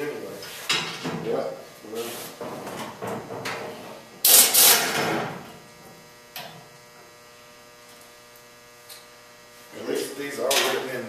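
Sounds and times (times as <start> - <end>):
steady hum: 0.0 - 11.0
air wrench burst: 4.2 - 5.1.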